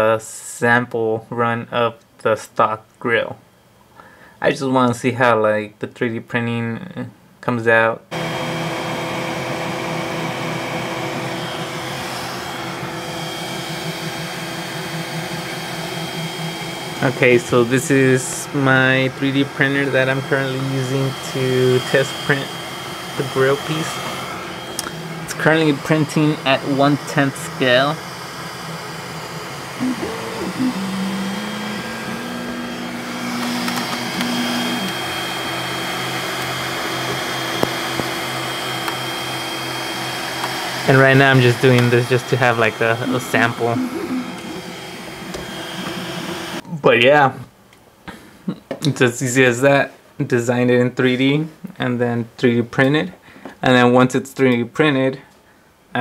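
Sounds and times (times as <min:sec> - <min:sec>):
stepper motor buzz: 0:08.1 - 0:46.6
cooling fans whirring: 0:08.1 - 0:47.4
thin high whine: 0:11.1 - 0:40.0, 0:40.8 - 0:46.6.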